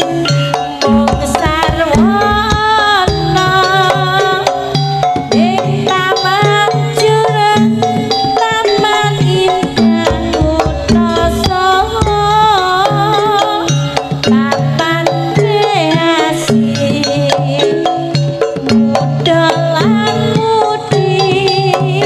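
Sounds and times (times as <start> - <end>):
drums beating a busy rhythm: 0.0 - 22.0
sliding held melody notes: 8.1 - 13.7.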